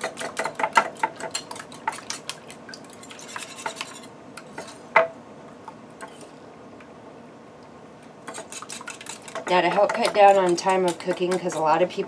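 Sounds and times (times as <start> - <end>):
whisk clicking against bowl: 8.3 - 12.0.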